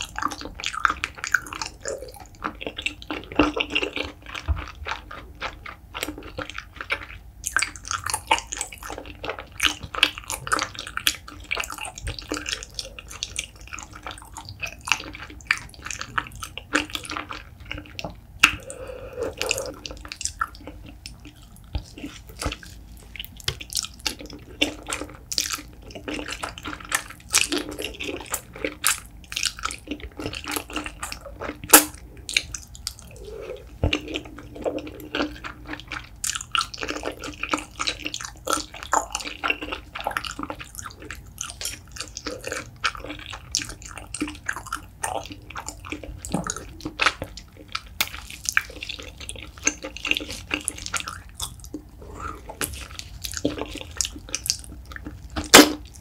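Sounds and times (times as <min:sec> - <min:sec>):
sticky smacking chewing: 0:00.0 - 0:56.0
noodle slurping: 0:12.3 - 0:21.0, 0:32.2 - 0:36.0.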